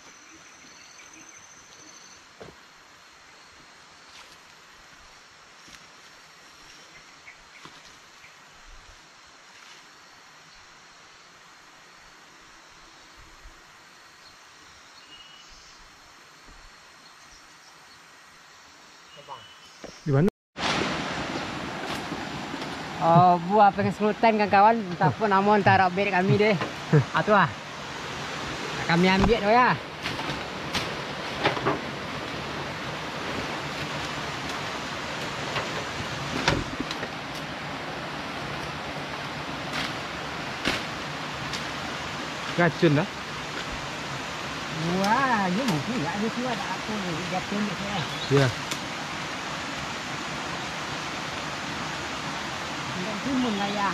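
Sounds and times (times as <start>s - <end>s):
forest ambience hiss: 0.0s - 53.9s
people rustling through undergrowth: 4.0s - 8.0s, 20.6s - 27.4s, 28.2s - 49.8s
steady rushing noise: 20.6s - 53.9s.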